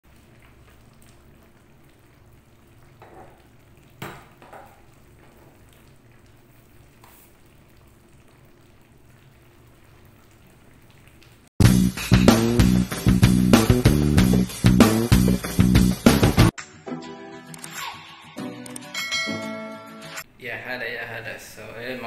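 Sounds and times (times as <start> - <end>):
pot simmering: 0.0 - 14.4.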